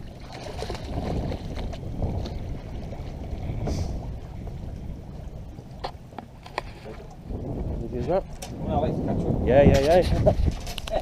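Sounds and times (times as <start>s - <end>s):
sea sounds: 0.0s - 8.7s
wind rumbling on microphone: 0.0s - 11.0s.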